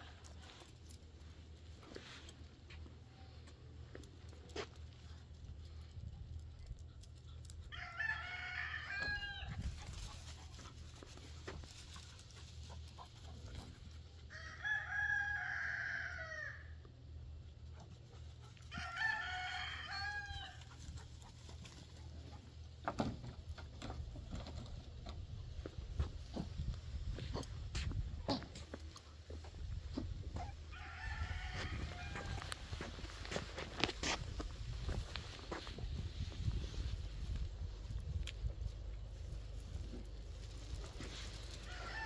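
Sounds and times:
rooster crowing: 0:07.7 - 0:09.6, 0:14.3 - 0:16.8, 0:18.7 - 0:20.7, 0:30.4 - 0:33.0, 0:41.6 - 0:42.0.

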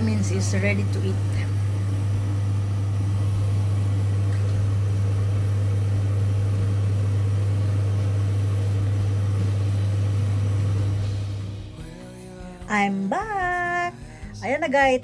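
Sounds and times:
small motor humming: 0:00.0 - 0:11.6.

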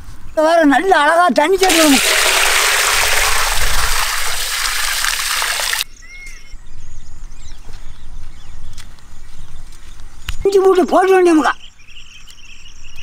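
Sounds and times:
water pouring into metal pot: 0:01.6 - 0:05.8.

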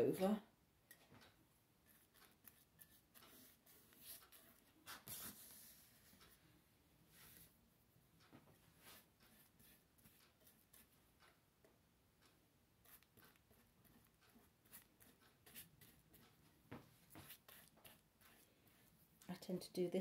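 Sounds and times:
paintbrush scratchy strokes: 0:01.8 - 0:06.4, 0:07.1 - 0:07.6, 0:08.5 - 0:11.1, 0:12.8 - 0:19.1.

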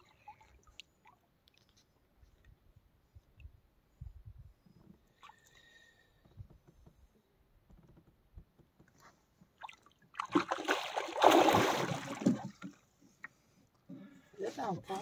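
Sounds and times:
fish thrashing in water: 0:09.6 - 0:12.7
loud splashing: 0:10.2 - 0:12.4.

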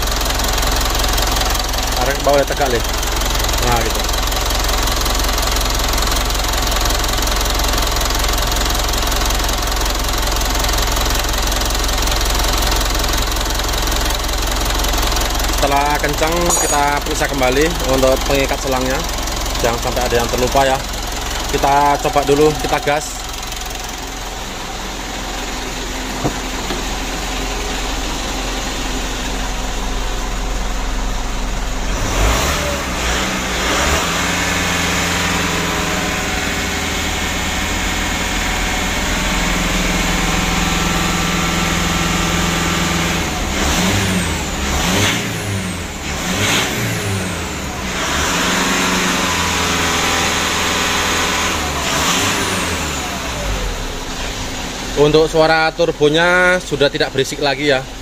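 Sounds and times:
diesel engine revving: 0:12.1 - 0:58.0.

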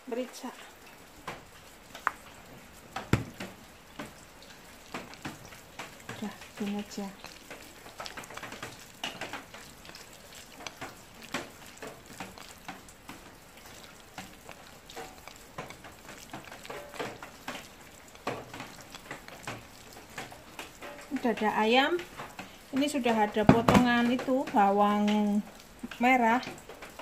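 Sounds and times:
tap running into steel sink: 0:03.0 - 0:04.1
hands squishing raw chicken: 0:03.0 - 0:21.2.

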